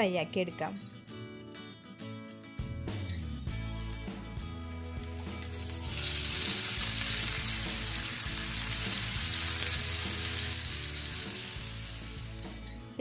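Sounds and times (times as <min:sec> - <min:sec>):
soft background music: 0:00.0 - 0:13.0
chicken sizzling in a frying pan: 0:05.0 - 0:12.8.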